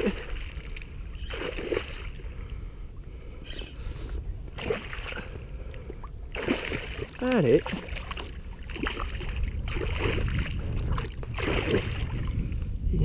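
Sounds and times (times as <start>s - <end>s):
water splashing: 0.0s - 2.4s, 4.5s - 12.4s
low rumble: 2.0s - 13.0s.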